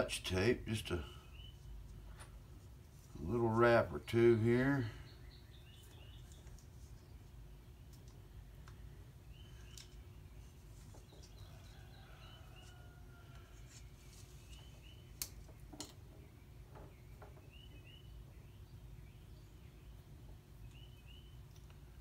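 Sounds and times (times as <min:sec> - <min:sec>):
faint bird chirps: 0:08.8 - 0:22.0.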